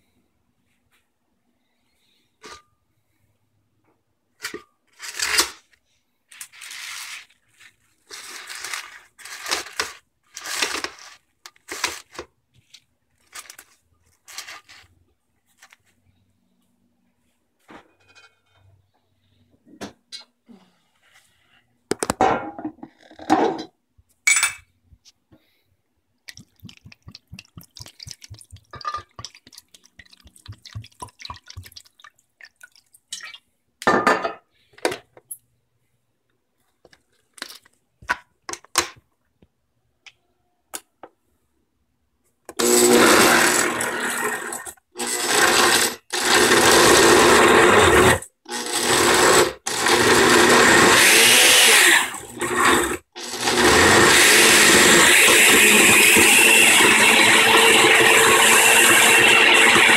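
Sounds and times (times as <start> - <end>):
blender motor blending: 42.6 - 59.9.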